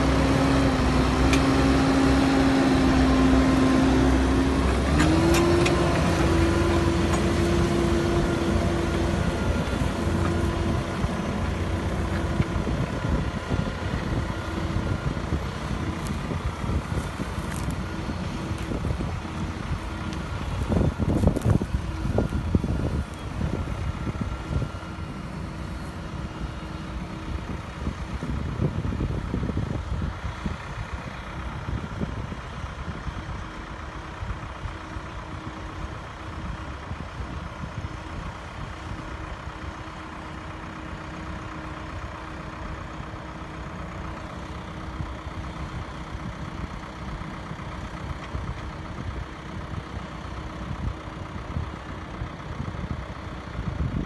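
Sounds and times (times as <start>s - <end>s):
wind rumbling on microphone: 0.0s - 39.9s, 44.8s - 54.0s
tractor diesel engine under load: 0.0s - 54.0s.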